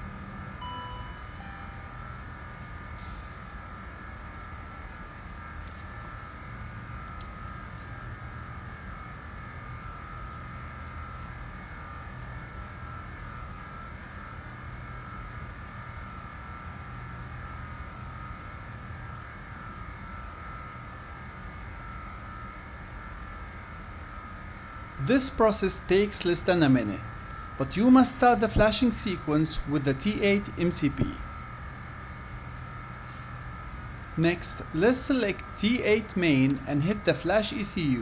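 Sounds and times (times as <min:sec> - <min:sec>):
low hum: 0:00.0 - 0:18.6
faint high whine: 0:00.0 - 0:38.0.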